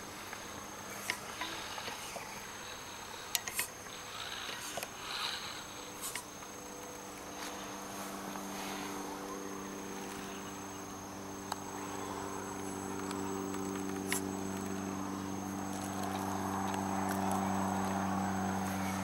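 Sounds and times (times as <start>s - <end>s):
electric motor whining: 0.0s - 19.0s.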